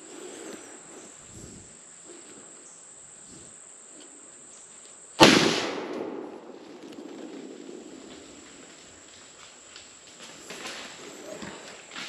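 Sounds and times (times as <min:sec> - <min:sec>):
insects droning: 0:00.0 - 0:12.0
shotgun blast echoing: 0:05.2 - 0:07.2.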